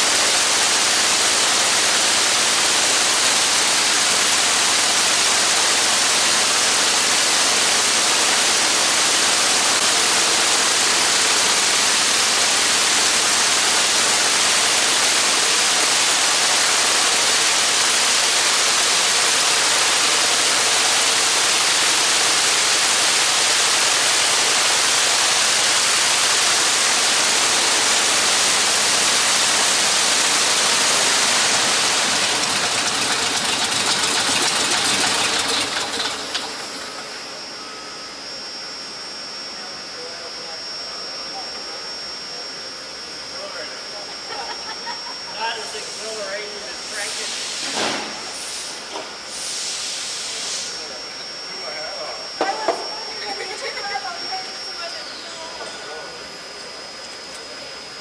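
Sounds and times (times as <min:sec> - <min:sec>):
propeller aircraft engine running: 0:00.0 - 0:37.6.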